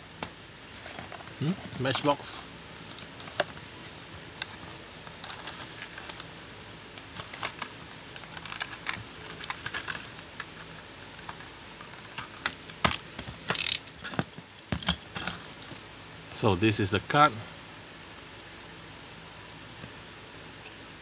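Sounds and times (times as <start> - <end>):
packaging rustle: 3.0 - 6.3, 7.0 - 14.2
plastic packaging clicks and crackles: 4.4 - 6.3, 6.9 - 15.3.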